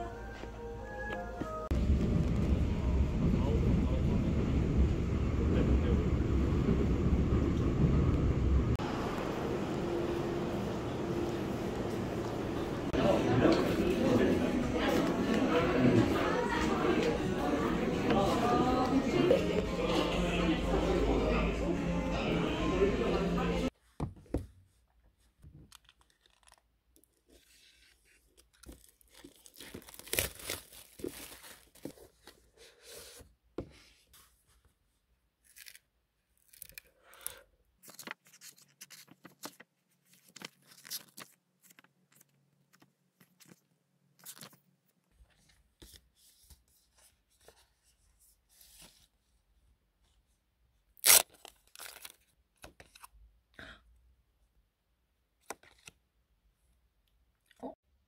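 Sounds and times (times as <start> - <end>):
packaging tearing and rustling: 25.6 - 32.4, 35.4 - 43.6, 51.0 - 53.1.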